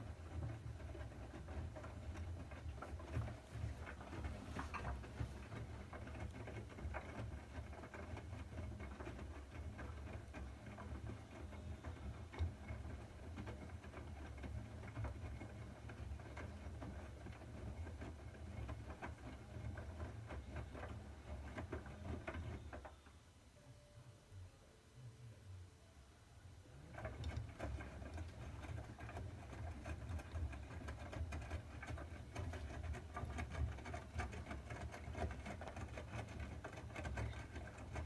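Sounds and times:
water sloshing in washing machine: 0.0s - 23.0s, 26.8s - 38.0s
washing machine drum rumble: 0.0s - 23.1s.

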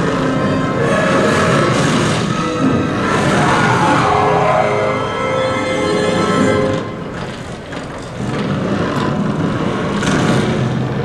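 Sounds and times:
dramatic film music chords: 0.0s - 7.4s
low rumbling noise: 0.0s - 11.0s.

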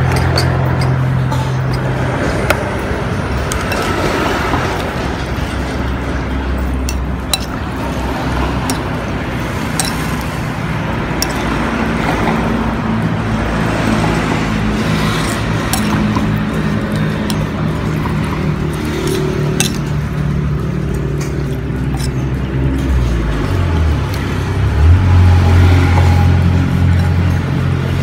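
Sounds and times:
metal spoon stirring soup: 0.0s - 24.4s
spoon clinking against bowl: 6.8s - 7.6s.

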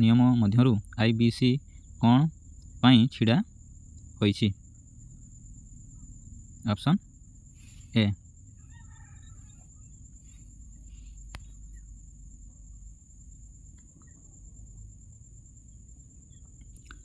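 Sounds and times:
faint short calls: 7.6s - 12.0s.

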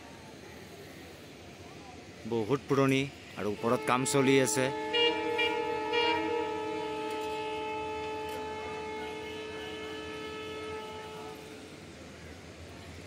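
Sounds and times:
train horn blast: 3.4s - 11.9s.

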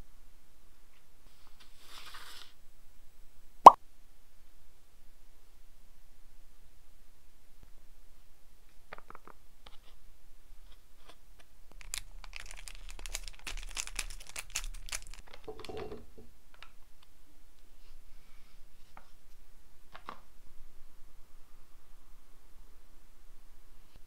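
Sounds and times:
plastic pouch tearing: 11.7s - 15.5s
plastic crinkling: 11.7s - 15.9s.

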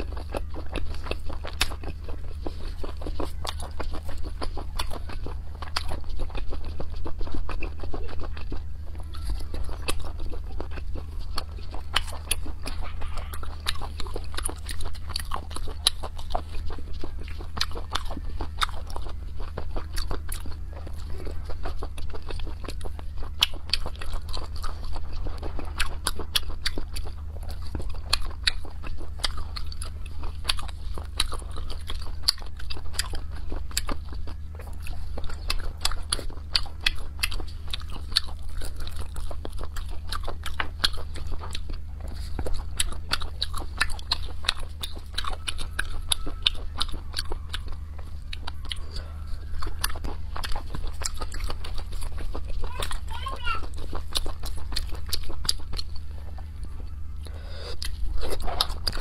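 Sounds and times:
chewing and biting: 0.0s - 59.0s
steady low hum: 0.0s - 59.0s
wet mouth smacking: 57.2s - 59.0s.

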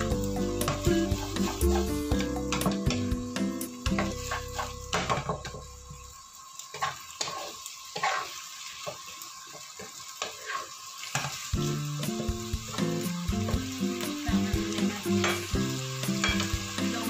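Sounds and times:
background music: 0.0s - 6.0s, 11.6s - 17.0s
food sizzling in oil: 0.0s - 17.0s
spatula scraping a wok: 0.6s - 2.6s, 3.9s - 4.9s, 6.7s - 11.4s.

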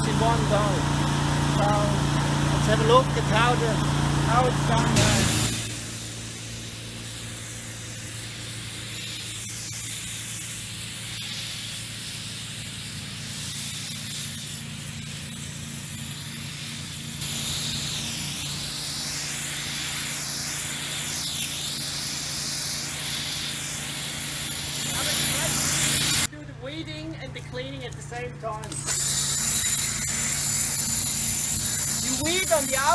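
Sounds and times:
low machine hum: 0.0s - 11.2s, 23.8s - 32.9s
steam hissing: 0.0s - 26.3s, 28.7s - 32.9s.

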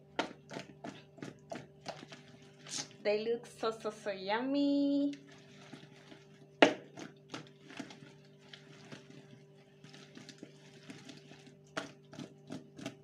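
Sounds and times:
potatoes tossed in plastic bowl: 4.6s - 13.0s.

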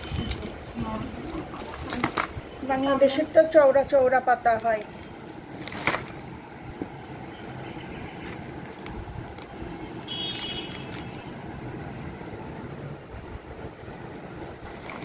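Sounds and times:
crackling soil scrape: 14.6s - 15.0s.

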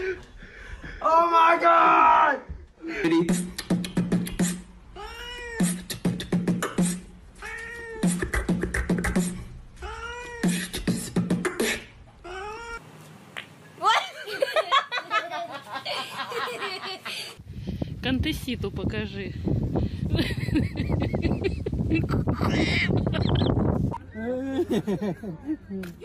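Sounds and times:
man beatboxing mouth clicks: 3.1s - 4.7s, 5.6s - 7.1s, 8.0s - 9.5s, 10.3s - 12.0s.

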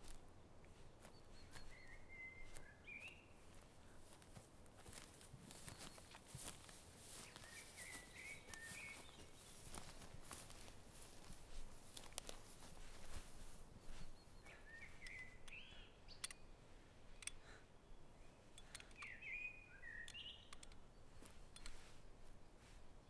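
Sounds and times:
footsteps through dry grass: 0.0s - 15.9s, 21.0s - 23.0s
small bird chirping: 0.8s - 4.2s, 4.9s - 21.9s.

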